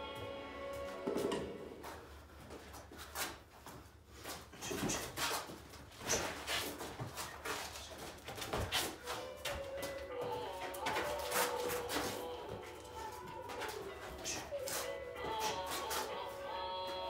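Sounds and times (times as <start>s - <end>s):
footwork scuffing on concrete: 1.8s - 17.0s.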